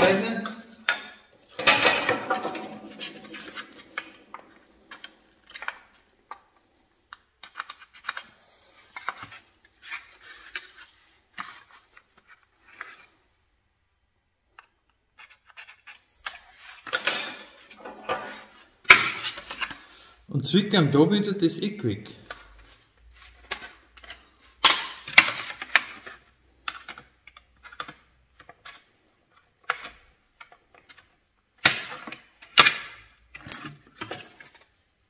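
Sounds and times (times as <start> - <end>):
metal scraping: 1.6 - 5.2
metal tools clicking and clinking: 33.4 - 34.8.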